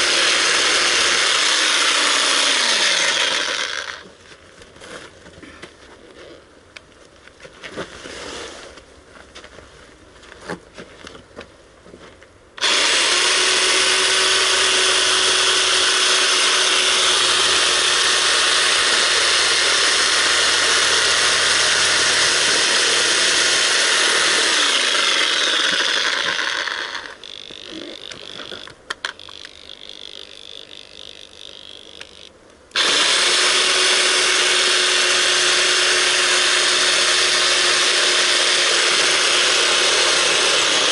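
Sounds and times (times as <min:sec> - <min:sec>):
reciprocating saw cutting: 0:00.0 - 0:04.1, 0:12.6 - 0:40.9.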